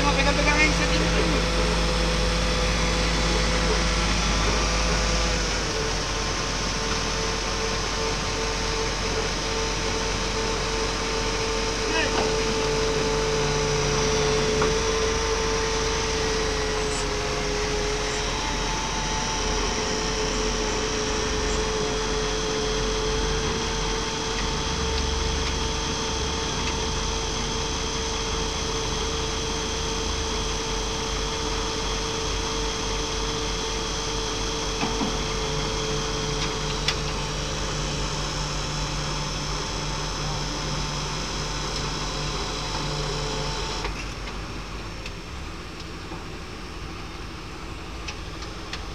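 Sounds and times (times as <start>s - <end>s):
engine and hydraulic pack droning: 0.0s - 48.9s.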